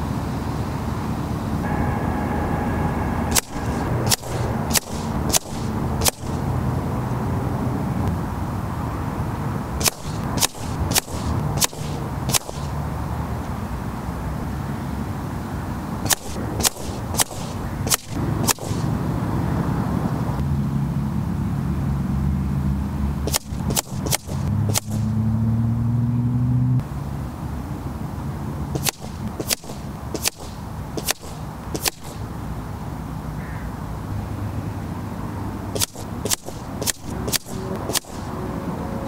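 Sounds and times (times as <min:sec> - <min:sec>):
low engine hum: 0:00.0 - 0:39.0
air rifle shots cracking: 0:03.3 - 0:06.8, 0:09.7 - 0:12.9, 0:16.0 - 0:19.1, 0:23.2 - 0:25.2, 0:28.7 - 0:32.4, 0:35.7 - 0:38.4.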